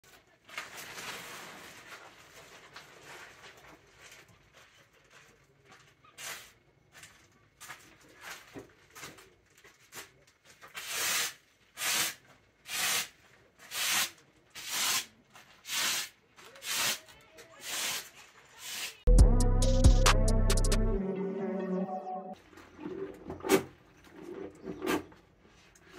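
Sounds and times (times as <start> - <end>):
plastic tarp rustling: 0.0 - 5.4
broom sweeping across tarp: 10.8 - 17.0, 17.6 - 19.1.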